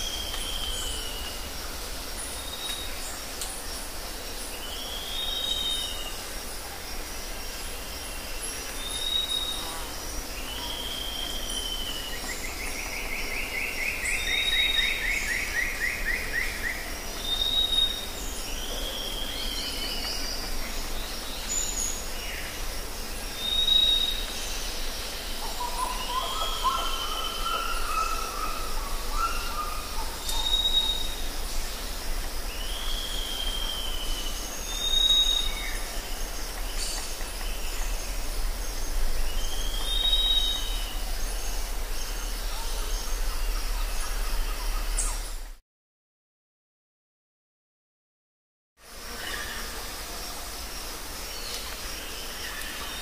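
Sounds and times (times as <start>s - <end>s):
steady high hiss: 0.0s - 45.6s, 48.8s - 53.0s
birds calling: 23.3s - 31.8s.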